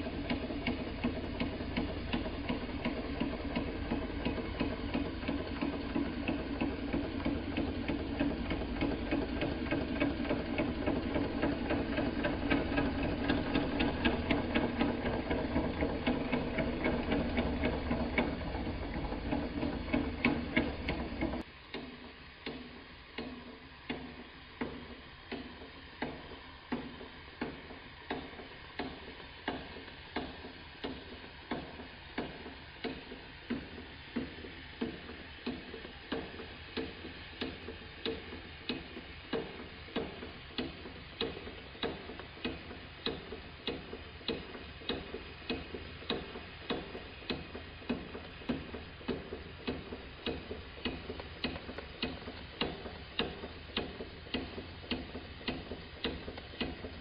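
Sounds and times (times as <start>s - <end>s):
steam engine clattering: 0.0s - 21.4s, 23.2s - 57.0s
slow even ticking: 0.0s - 57.0s.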